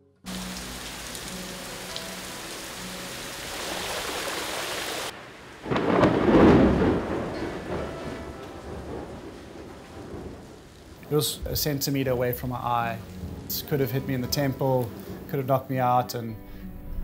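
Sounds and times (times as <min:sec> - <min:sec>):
whitewater hiss: 0:00.3 - 0:05.1.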